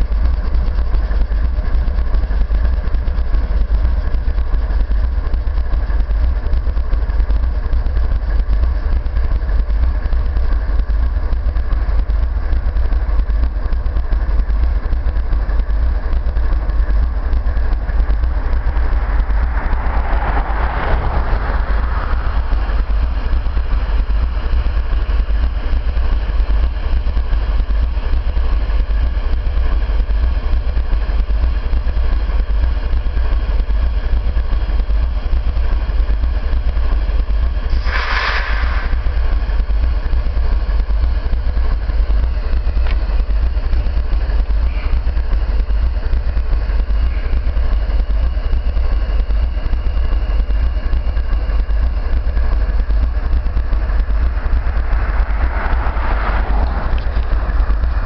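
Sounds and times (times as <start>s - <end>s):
diesel locomotive engine rumble: 0.0s - 58.0s
rush of noise: 14.4s - 27.9s, 37.7s - 40.8s, 51.6s - 58.0s.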